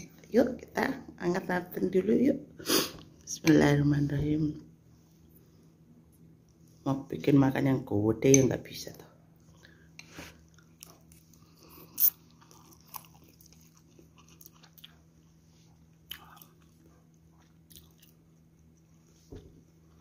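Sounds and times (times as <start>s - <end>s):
person eating and chewing: 9.5s - 19.1s.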